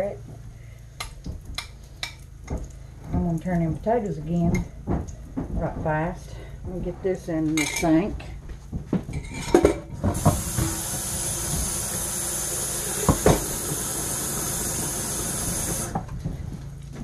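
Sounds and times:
water running from faucet: 10.2s - 16.0s.

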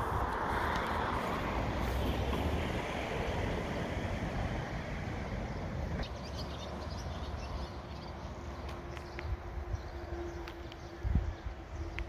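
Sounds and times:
wind buffeting microphone: 0.0s - 6.1s, 8.7s - 12.0s.

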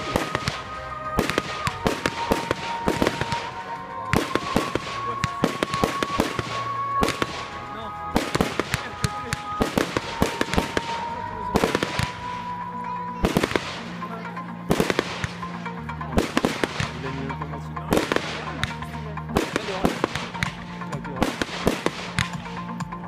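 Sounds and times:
fireworks shells launching: 0.0s - 12.6s
fireworks bangs and crackles: 0.0s - 23.0s.

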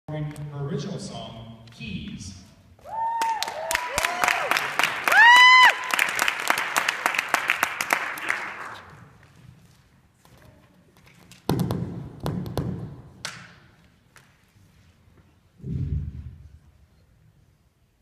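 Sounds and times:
shrill cheer: 2.8s - 6.2s
audience applause: 2.9s - 8.9s.

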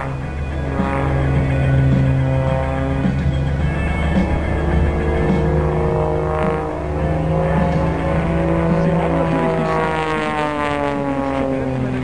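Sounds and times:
propeller plane flying past: 0.0s - 12.0s.

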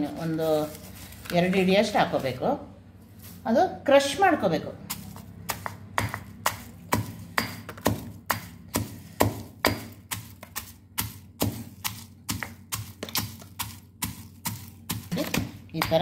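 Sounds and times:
pestle pounding garlic in mortar: 4.8s - 16.0s.

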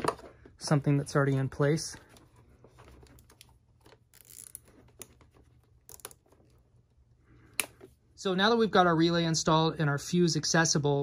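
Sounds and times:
rustling of wires: 0.0s - 7.0s
hands fastening zip tie: 3.2s - 6.3s.

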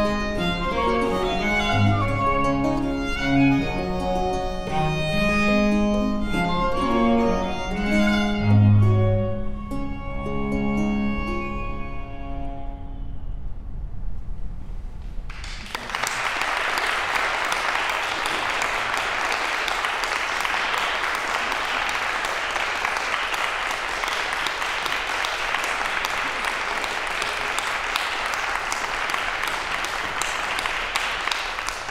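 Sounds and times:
audience applauding: 15.3s - 31.9s.

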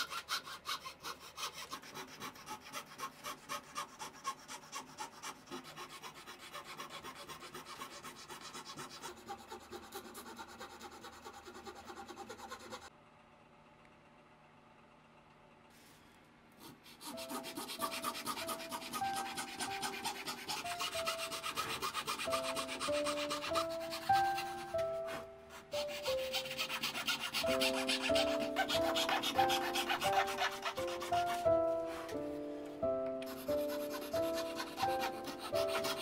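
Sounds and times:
fret saw cutting thin wood: 0.0s - 12.9s, 16.6s - 32.2s, 33.2s - 36.0s
gentle instrumental melody: 22.3s - 26.6s, 27.5s - 36.0s.

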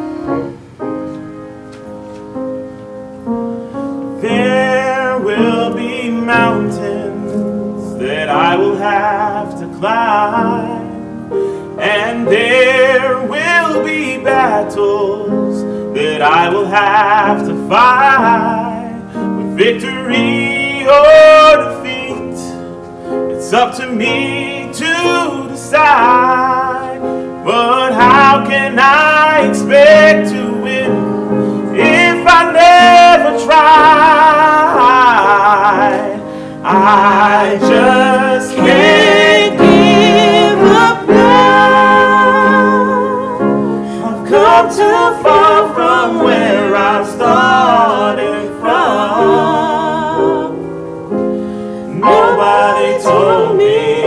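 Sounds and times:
piano accompaniment: 0.0s - 54.0s
gospel singing with vibrato: 3.2s - 54.0s.

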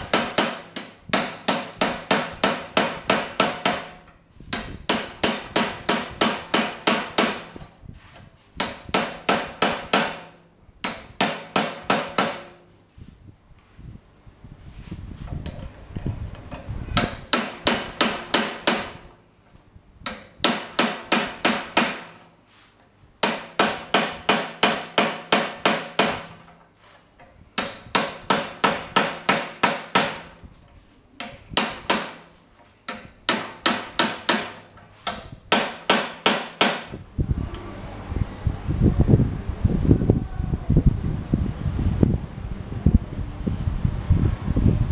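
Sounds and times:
hammer striking chisel on metal: 0.0s - 7.6s, 8.6s - 12.6s, 16.5s - 19.1s, 20.0s - 22.3s, 23.2s - 26.6s, 27.2s - 30.4s, 31.2s - 37.0s.

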